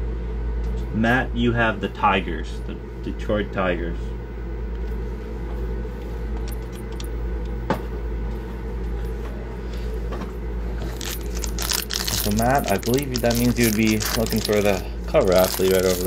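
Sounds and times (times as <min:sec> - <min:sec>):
low machine hum: 0:00.0 - 0:16.0
foil wrapper crinkling: 0:10.8 - 0:16.0.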